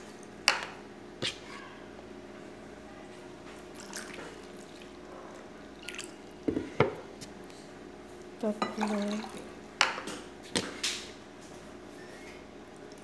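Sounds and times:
faint water pouring: 3.7s - 5.0s, 5.8s - 6.4s, 8.7s - 9.5s.

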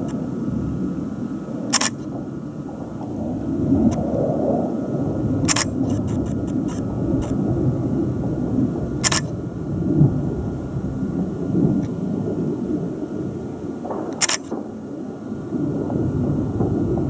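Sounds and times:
distant jet aircraft rumble: 0.0s - 17.0s
camera handling clicks: 1.7s - 2.0s, 9.0s - 9.3s, 14.2s - 14.5s.

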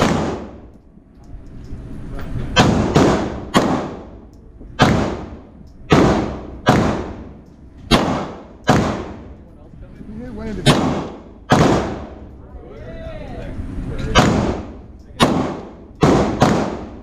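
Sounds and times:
indoor gunshots with echo: 0.0s - 0.8s, 2.6s - 9.4s, 10.6s - 12.3s, 14.1s - 17.0s.

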